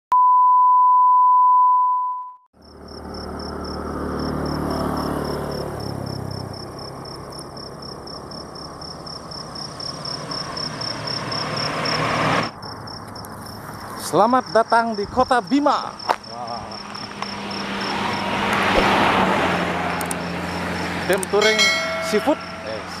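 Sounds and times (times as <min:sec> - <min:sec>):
crickets chirping: 0:02.6 - 0:23.0
traffic engine rumble: 0:02.6 - 0:23.0
steady test tone: 0:21.1 - 0:23.0.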